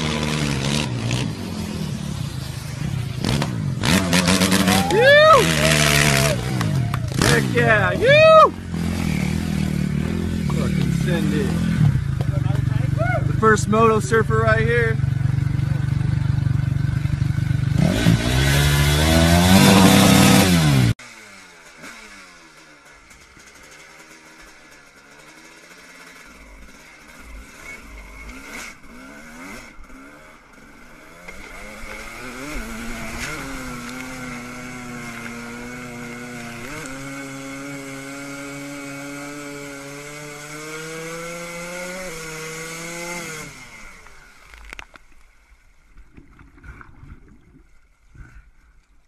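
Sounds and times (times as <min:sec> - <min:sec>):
dirt bike engine revving: 0:00.0 - 0:44.7
faint water splashing: 0:44.6 - 0:49.0.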